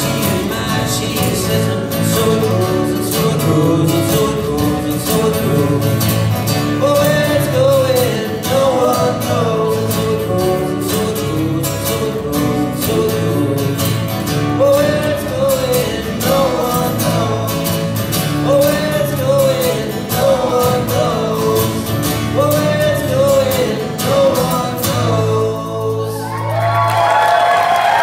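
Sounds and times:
voices singing: 0.0 - 26.7
acoustic guitars strumming: 0.0 - 28.0.

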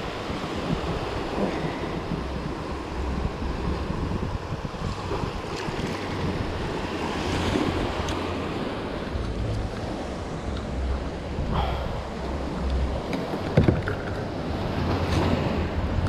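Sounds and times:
sea waves: 0.0 - 16.0
wind buffeting microphone: 0.0 - 16.0.

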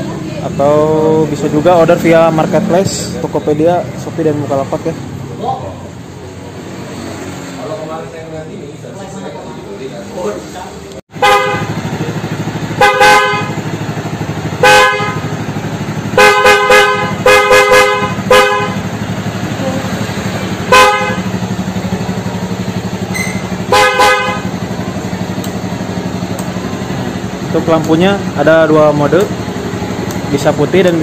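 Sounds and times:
motorcycle engine idling: 0.0 - 6.4, 7.9 - 31.0
motorcycle horn honking: 11.1 - 30.4.

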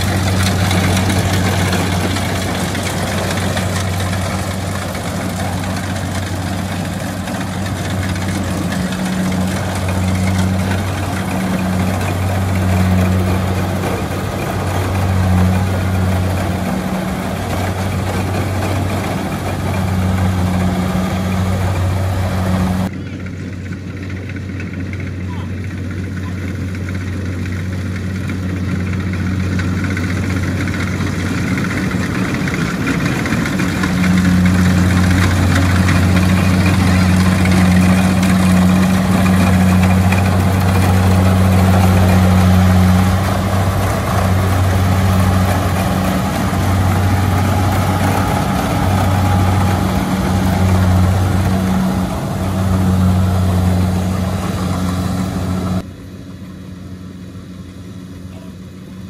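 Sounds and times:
diesel engine droning: 0.0 - 59.0
harvester threshing machinery noise: 0.0 - 59.0.

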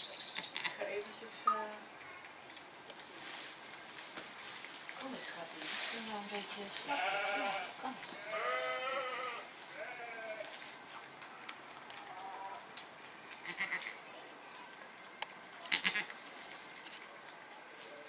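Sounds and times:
rustling: 0.6 - 18.0
goat bleating: 6.8 - 10.5, 13.4 - 14.0, 15.6 - 16.2.

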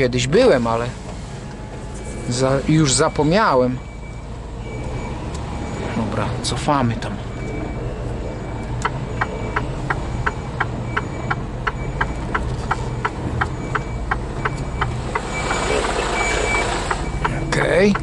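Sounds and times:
diesel truck engine running low: 0.0 - 18.0
faint high reversing beep: 1.6 - 6.3, 7.2 - 17.4
even ticking: 8.5 - 18.0.

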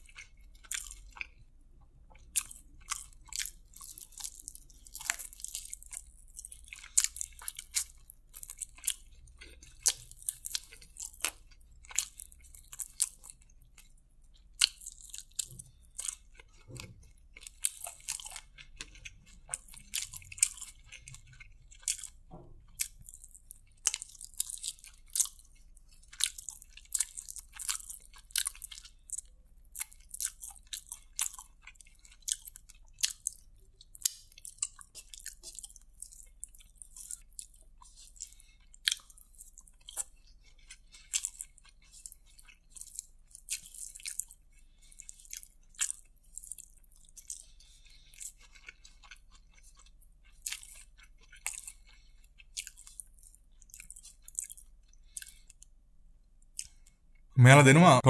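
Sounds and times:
crisp chewing crunches: 0.0 - 1.4, 2.2 - 55.7, 56.4 - 57.0.

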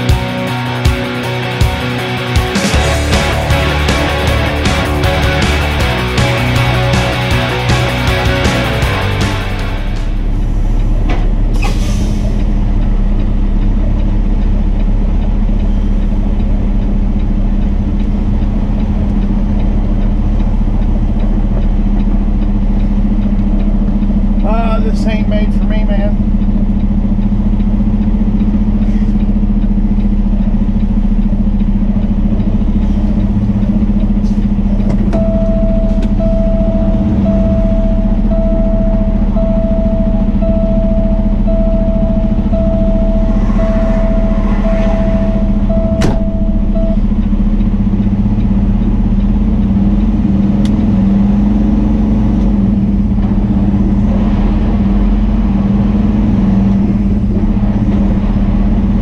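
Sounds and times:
truck engine and road noise: 0.0 - 59.0
cab warning beep: 35.0 - 48.6.

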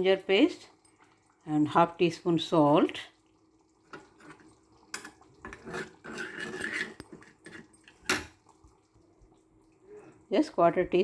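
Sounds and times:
spoon stirring paste in pan: 3.8 - 8.1
rough rasping scrape: 5.6 - 7.0.

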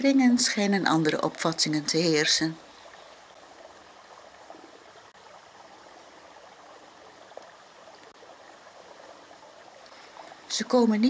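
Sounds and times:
running water rushing: 0.0 - 11.0.

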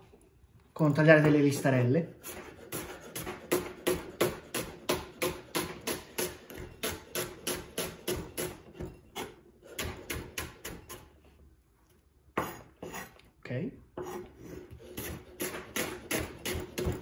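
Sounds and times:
knife chopping on wooden board: 2.2 - 11.1, 12.4 - 13.0, 14.0 - 17.0.

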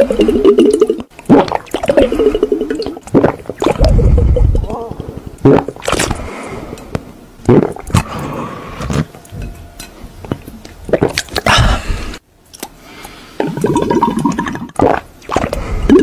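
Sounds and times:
person gulping from bottle: 0.0 - 6.3, 7.4 - 9.1, 10.9 - 12.0, 13.4 - 16.0.

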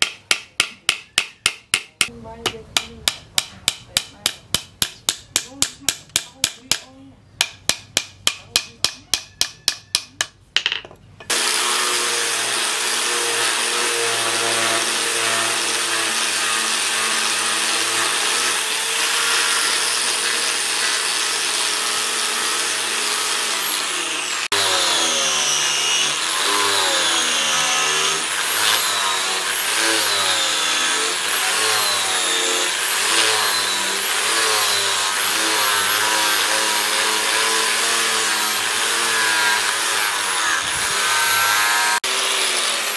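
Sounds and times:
angle grinder sanding wood: 11.3 - 42.9.

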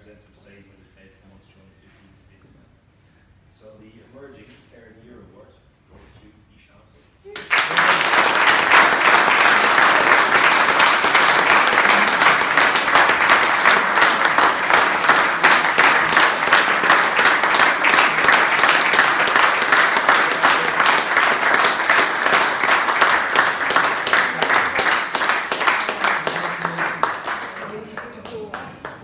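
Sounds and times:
crowd applauding: 7.4 - 29.0.

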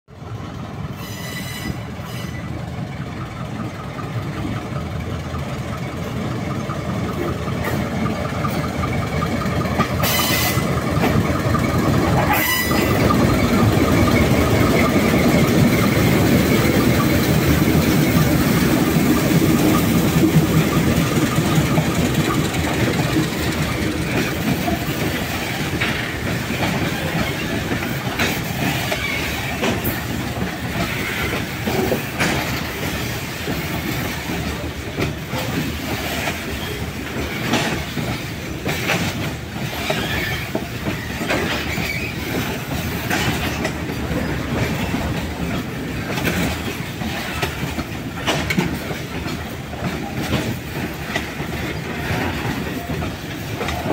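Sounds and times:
diesel locomotive engines: 0.1 - 53.9
wagons rumbling over rails: 0.1 - 53.9.

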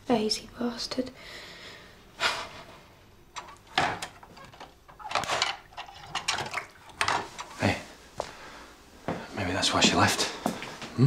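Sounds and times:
crockery and utensils clattering: 3.4 - 7.7.

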